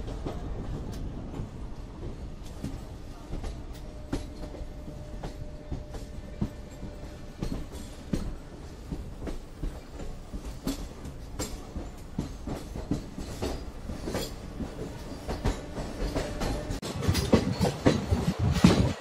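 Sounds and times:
train rumbling on rails: 0.0 - 19.0
train wheels clacking: 0.0 - 19.0.

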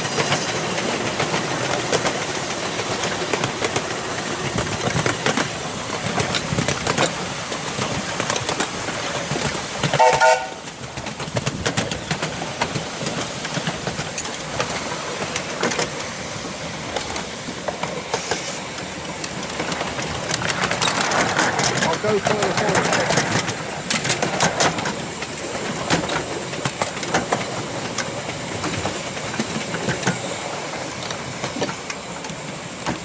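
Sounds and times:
miniature steam train rumbling: 0.0 - 33.0
wheels clicking on track: 0.0 - 33.0
train whistle blast: 10.0 - 10.6.

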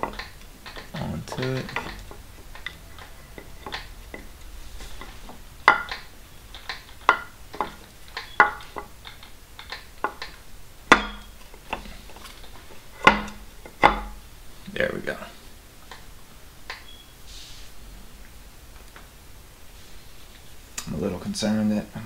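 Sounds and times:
light metallic clicks and knocks: 0.0 - 14.2.

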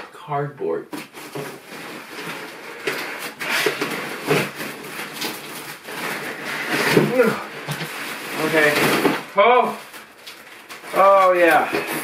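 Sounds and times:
cardboard scraping: 0.9 - 12.0
plastic wrapping crinkling: 1.0 - 12.0.

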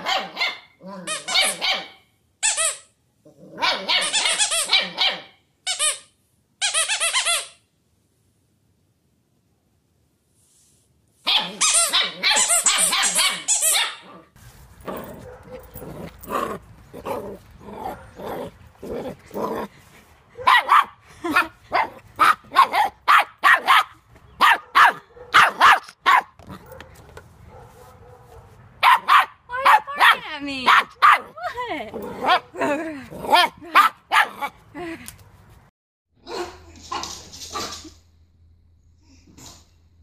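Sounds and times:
puppies barking high and yappy: 0.0 - 2.6, 3.6 - 5.4, 11.3 - 14.1, 14.8 - 19.4, 20.3 - 32.6, 33.3 - 34.6.

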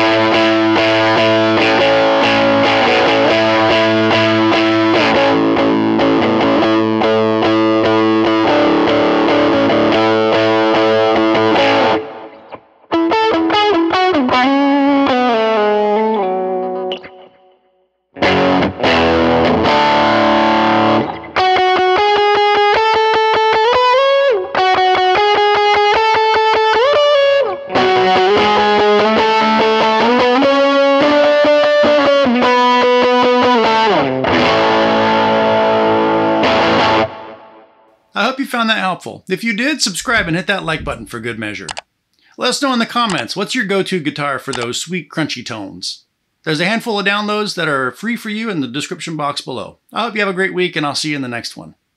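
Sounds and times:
electric guitar with overdrive: 0.0 - 37.7.

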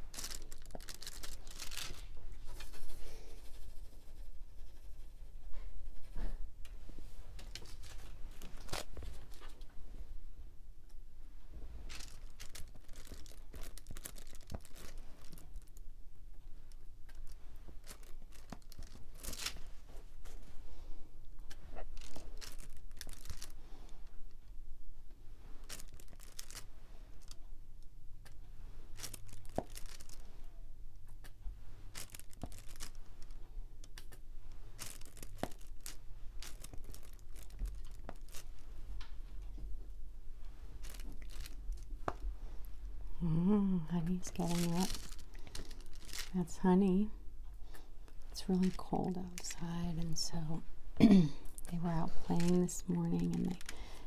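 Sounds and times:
plastic crinkling: 0.0 - 2.9, 7.4 - 9.7, 11.9 - 15.9, 16.7 - 20.4, 21.5 - 24.2, 25.6 - 27.4, 28.9 - 30.4, 31.9 - 39.1, 40.7 - 42.3, 44.0 - 50.4, 51.4 - 54.0.

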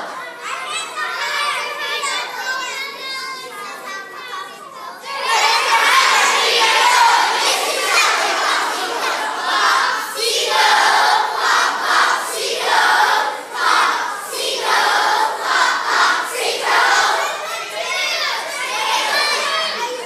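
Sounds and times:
children chanting: 0.0 - 20.0.

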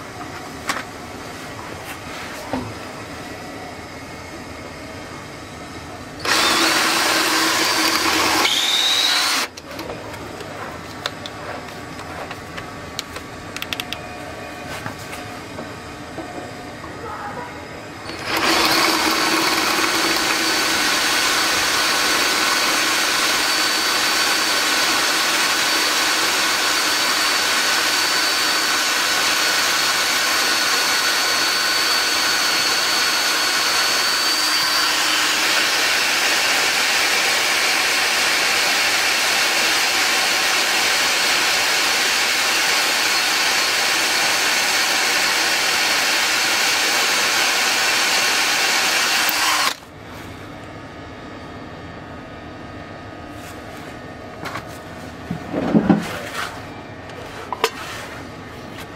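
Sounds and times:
power drill boring into metal: 6.2 - 9.5, 18.1 - 49.8.

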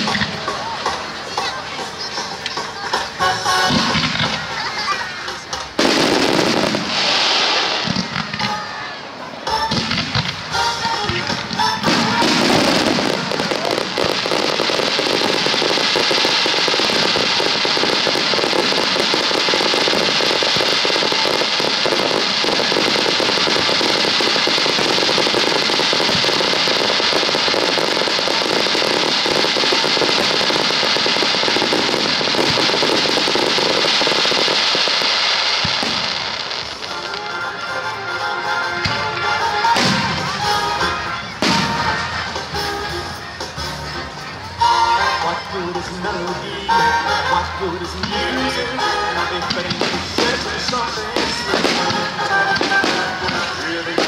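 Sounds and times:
fireworks bursting and crackling: 0.0 - 54.0.

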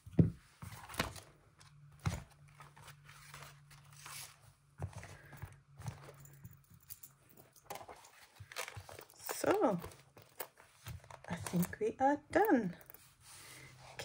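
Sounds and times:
light paper rustling: 0.6 - 6.2.

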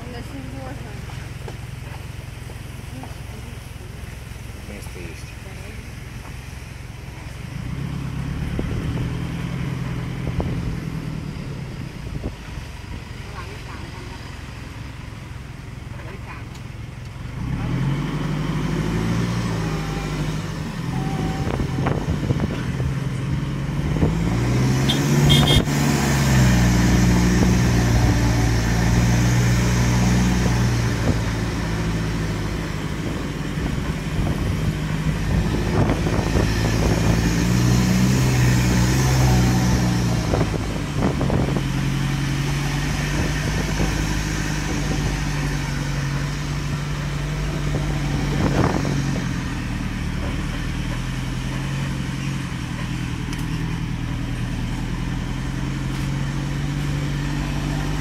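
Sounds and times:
truck engine running: 0.0 - 58.0.

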